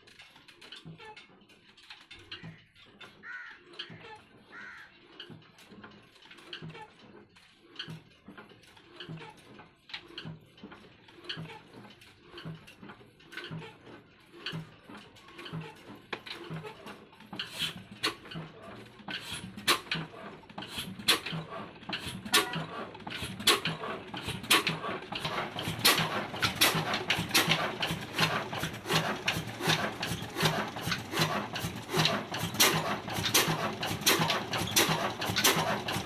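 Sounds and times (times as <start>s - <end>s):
diesel engine knocking: 11.3s - 36.0s.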